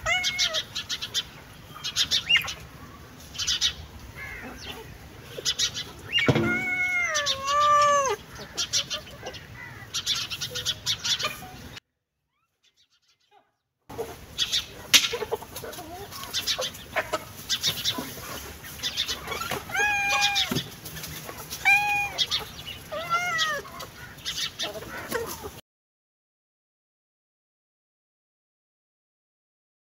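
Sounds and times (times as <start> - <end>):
cat meowing: 0.0 - 0.7, 6.2 - 8.2, 19.7 - 20.6, 21.6 - 23.8.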